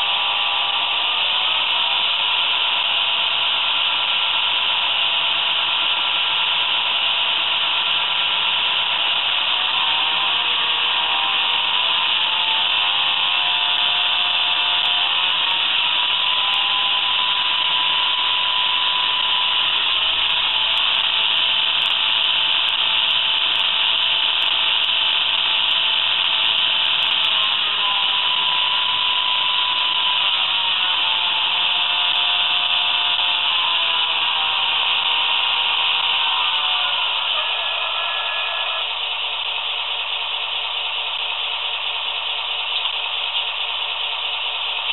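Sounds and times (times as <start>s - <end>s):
model locomotive diesel engine sound: 0.0s - 44.9s
whistling tone rising and falling: 8.0s - 21.1s, 26.5s - 38.9s.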